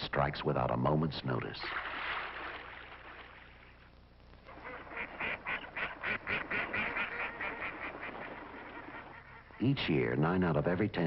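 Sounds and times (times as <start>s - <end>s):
waterfowl calling: 4.5s - 10.2s.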